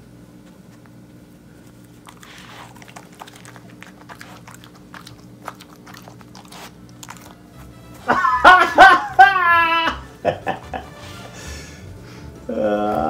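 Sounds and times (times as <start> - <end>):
dog chewing treats: 1.6 - 8.1.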